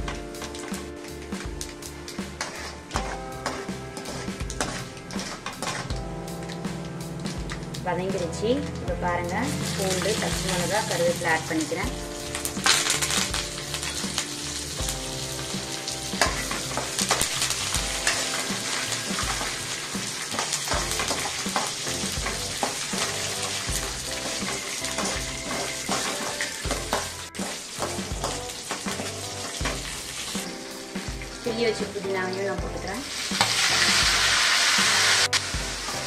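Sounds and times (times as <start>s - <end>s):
food sizzling in hot oil: 0.0s - 8.3s, 9.2s - 36.0s
metal spatula scraping pan: 2.4s - 6.0s, 20.4s - 29.9s.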